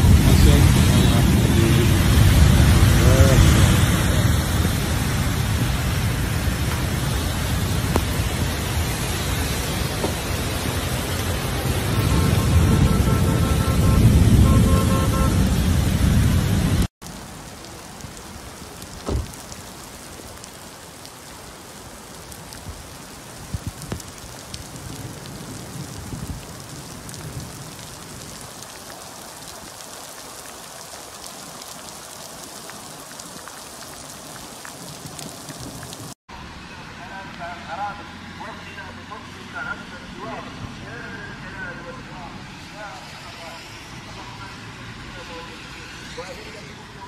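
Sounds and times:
loud rough rush of noise: 0.0s - 16.9s
rain on wet street: 0.0s - 47.0s.

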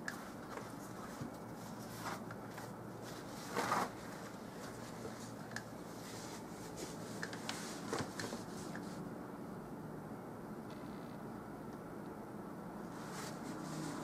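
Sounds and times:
quiet steady hum: 0.0s - 14.0s
paintbrush scratchy rustle: 12.9s - 14.0s.

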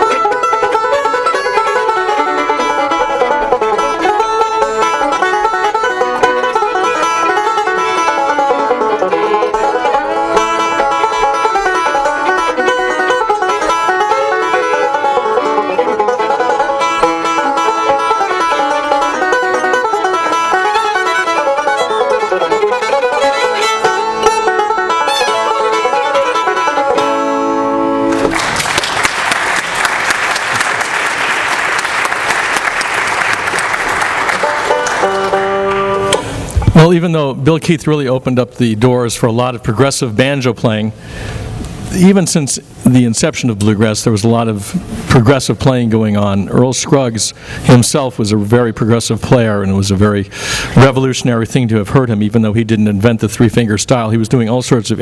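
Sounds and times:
banjo and fiddle tune: 0.0s - 28.3s, 34.2s - 55.0s
audience applause: 28.1s - 35.9s.

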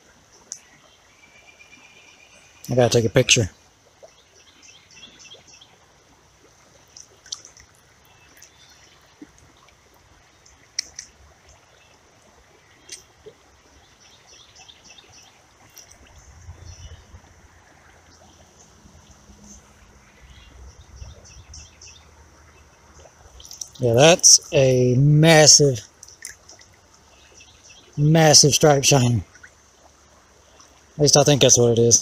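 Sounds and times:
faint steady hiss: 0.0s - 32.0s
water trickling: 0.0s - 32.0s
small birds chirping: 0.2s - 5.8s, 6.7s - 32.0s
sharp clicks: 10.7s - 11.2s
low rumble: 16.1s - 22.2s.

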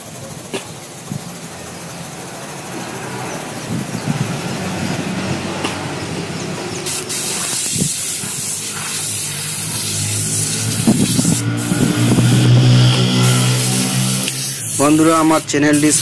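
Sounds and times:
motor running steadily: 0.0s - 14.8s
compressed air hissing from spray gun: 5.6s - 16.0s.

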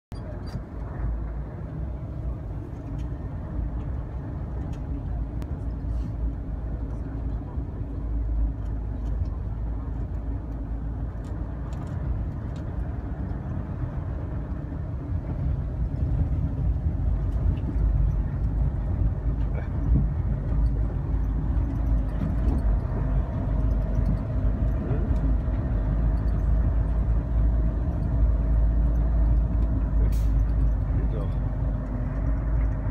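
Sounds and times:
bus engine low rumble: 0.1s - 32.9s
light clicks and rattles: 15.8s - 32.9s.

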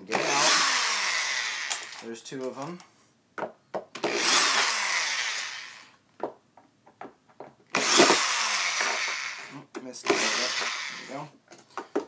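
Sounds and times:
electric drill running: 0.1s - 2.0s, 4.0s - 5.9s, 7.8s - 9.5s, 10.1s - 11.2s.

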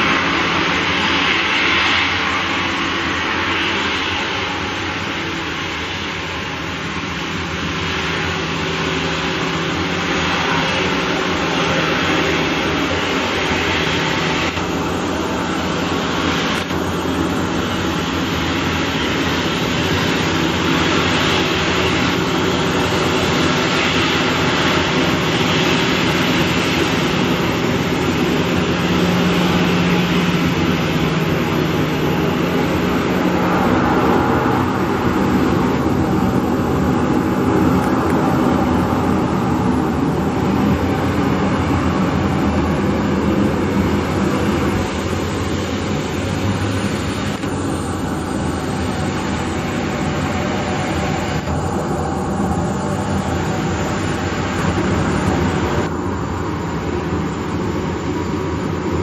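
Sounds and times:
jet engines taxiing: 0.0s - 59.0s.

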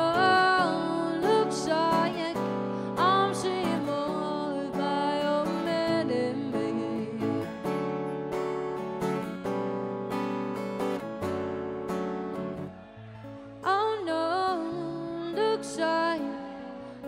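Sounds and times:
woman singing: 0.0s - 7.7s, 13.6s - 17.0s
acoustic guitar strumming: 0.0s - 17.0s.

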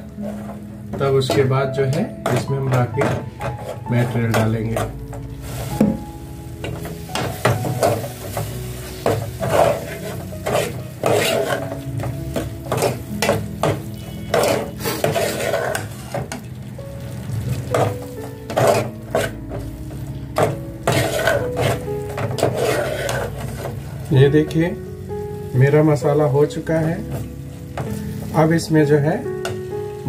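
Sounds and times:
sizzling: 0.0s - 30.0s
metal ladle scraping a pot: 7.1s - 16.5s, 17.7s - 19.7s, 20.4s - 23.8s.

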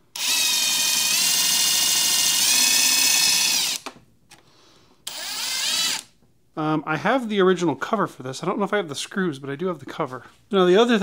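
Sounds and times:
cordless drill whining: 0.1s - 3.9s, 5.0s - 6.1s.

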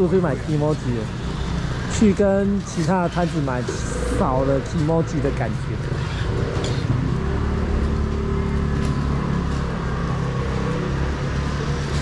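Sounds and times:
low engine drone: 3.8s - 11.0s.

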